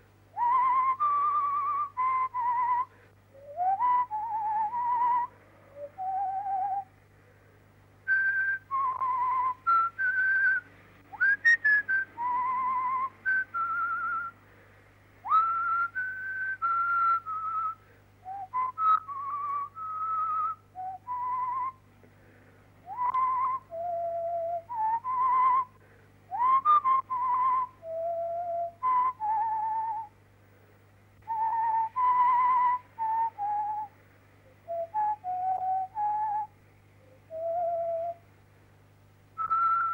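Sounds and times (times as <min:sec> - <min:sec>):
faint steady hum: 0:00.0 - 0:39.9
person whistling a tune: 0:00.4 - 0:06.9, 0:08.1 - 0:10.6, 0:11.2 - 0:14.4, 0:15.3 - 0:21.8, 0:22.8 - 0:30.1, 0:31.2 - 0:33.9, 0:34.6 - 0:36.5, 0:37.1 - 0:38.2, 0:39.4 - 0:39.9.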